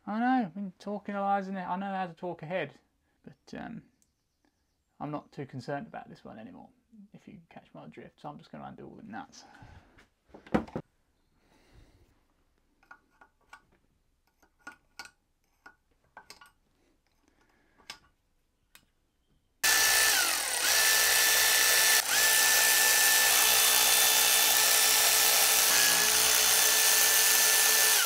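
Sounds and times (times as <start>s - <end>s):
metallic clicks of hand tools: 12.8s - 18.2s
power drill running: 19.6s - 28.0s.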